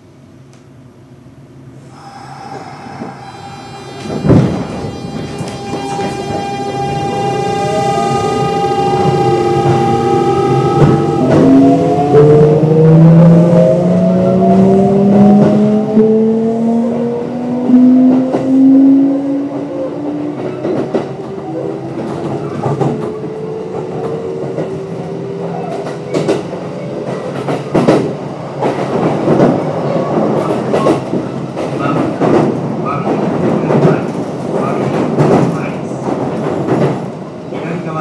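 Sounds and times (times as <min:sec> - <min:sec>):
train wheels clicking over rail joints: 0:30.2 - 0:37.1.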